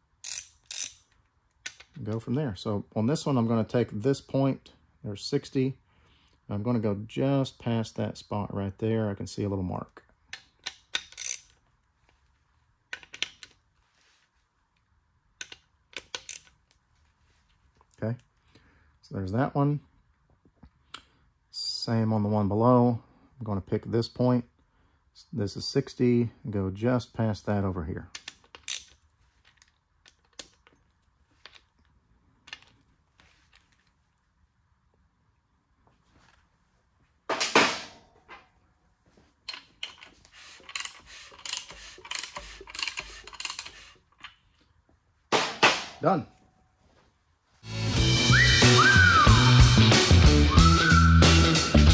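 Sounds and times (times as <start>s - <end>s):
hand ratchet clicking: 0.2s - 2.0s, 10.3s - 11.6s, 12.9s - 13.6s, 15.4s - 16.6s, 28.2s - 30.7s, 39.5s - 44.4s.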